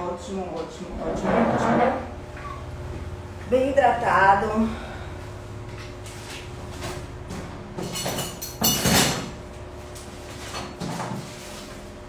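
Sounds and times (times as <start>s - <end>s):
faint steady hum: 0.0s - 7.2s
plastic bag scrape: 1.0s - 2.2s.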